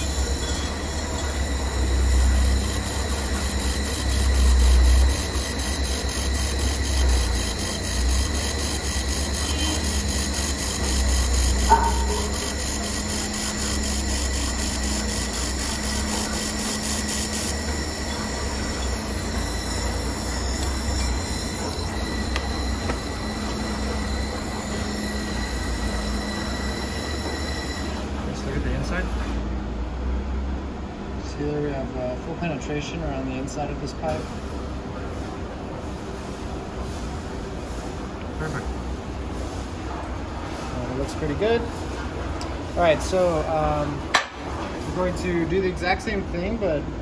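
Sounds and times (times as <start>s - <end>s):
laser welder fast ticking: 0.0s - 27.9s
machine whine: 0.0s - 29.5s.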